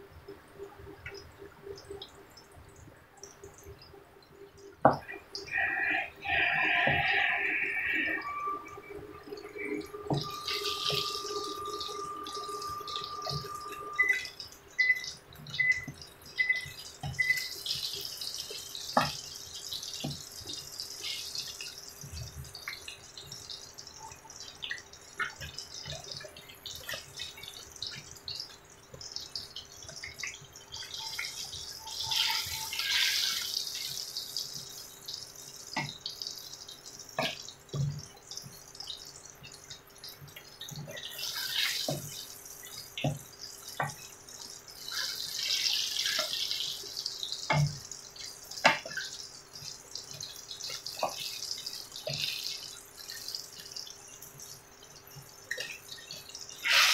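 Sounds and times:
eggplant sizzling in hot oil: 5.4 - 56.9
short beeps: 8.1 - 15.0.

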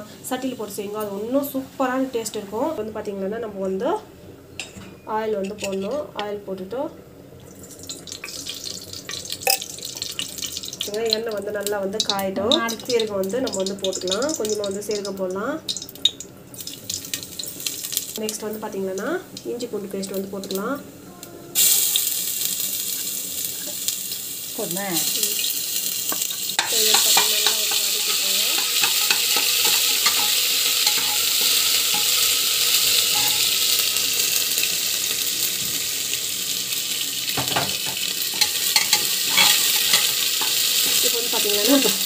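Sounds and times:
sizzling in hot oil: 7.3 - 21.0, 21.6 - 42.0
spoon clicking against pot: 26.6 - 32.2.

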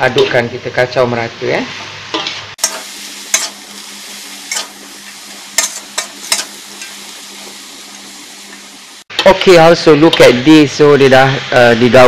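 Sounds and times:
vegetables sizzling in a wok: 1.4 - 12.0
utensil scraping a wok: 1.8 - 9.0.

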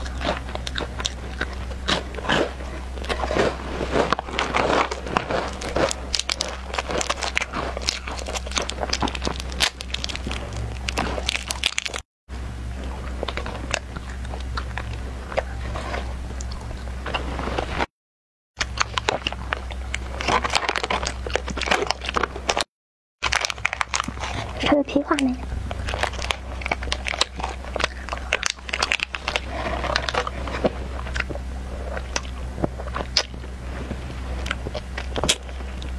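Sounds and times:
chewing crunchy snacks: 0.0 - 12.0, 12.7 - 17.9, 18.6 - 35.9
plastic wrapper crinkling: 3.0 - 12.0, 18.6 - 31.3.

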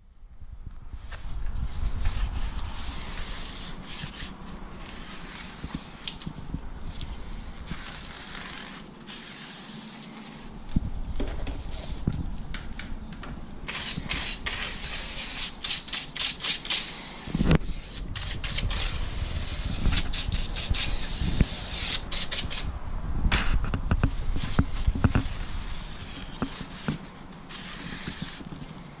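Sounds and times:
towel rubbing metal track: 7.0 - 10.6, 24.0 - 29.0.

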